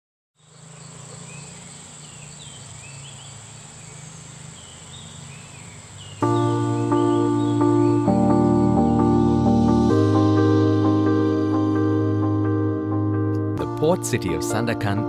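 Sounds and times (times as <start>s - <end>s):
short chirping calls: 0.4s - 9.2s
loud music: 6.2s - 15.0s.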